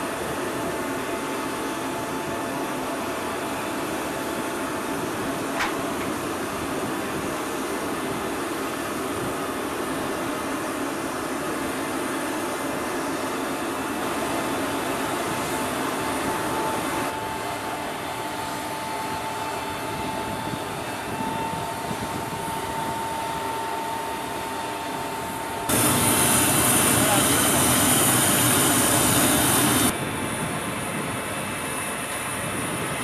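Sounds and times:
aircraft machinery rumble: 0.0s - 33.0s
thin high whine: 15.3s - 30.0s.

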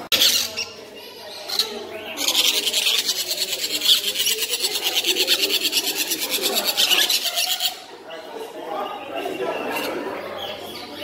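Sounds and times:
parrot chicks begging calls: 0.0s - 8.3s.

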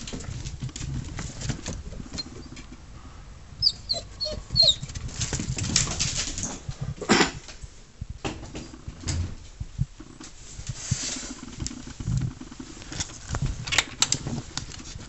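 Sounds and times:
dog whimpering: 3.6s - 4.9s.

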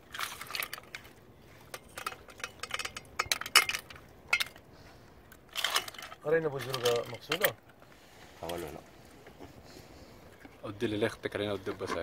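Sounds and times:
mussel shells clinking: 0.0s - 7.8s.

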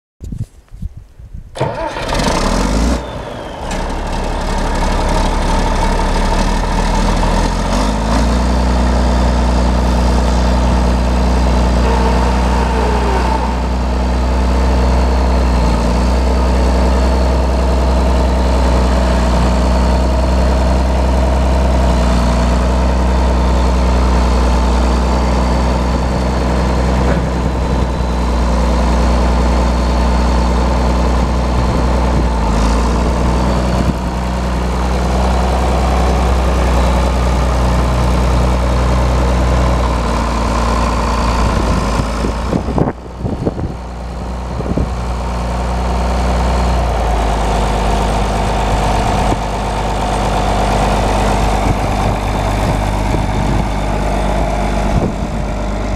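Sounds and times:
diesel tractor engine idling: 1.6s - 55.9s.

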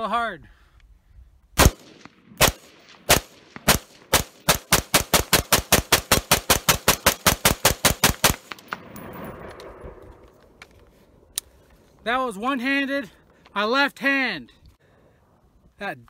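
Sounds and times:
rifle shots: 1.6s - 10.2s.

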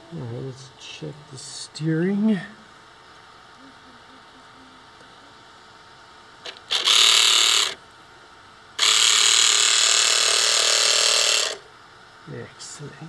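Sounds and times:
small electric gear motor: 6.4s - 7.8s, 8.8s - 11.7s.

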